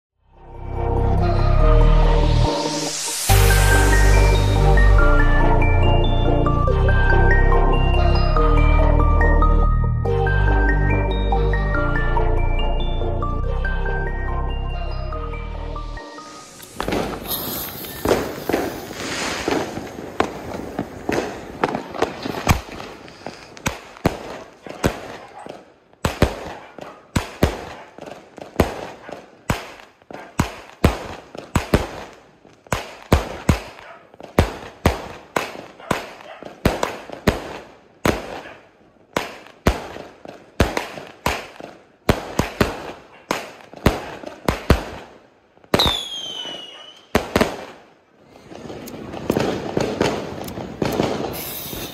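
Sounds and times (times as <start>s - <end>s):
falling firework whistle: 2.4s - 5.4s, 16.0s - 22.5s, 45.8s - 47.2s, 51.0s - 51.9s.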